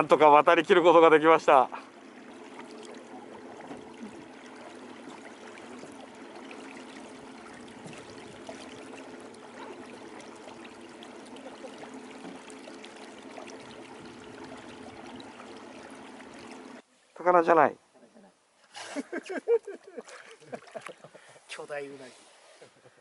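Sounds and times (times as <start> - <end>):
water washing along boat hull: 0.0 - 16.8
faint steady hum: 0.0 - 21.6.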